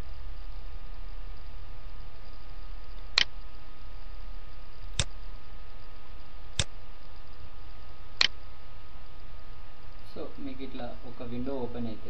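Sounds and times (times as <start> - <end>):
low hum: 0.0 - 12.0
microphone hiss: 0.0 - 12.0.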